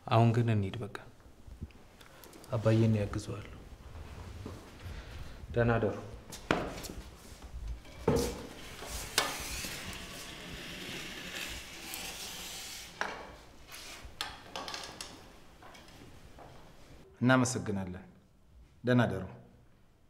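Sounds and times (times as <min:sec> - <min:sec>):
wheelchair rolling hiss: 0:08.3 - 0:13.0.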